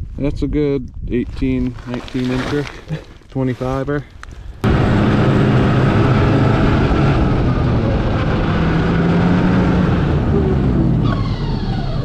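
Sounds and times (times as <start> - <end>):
snowmobile engine running: 4.6 - 12.0.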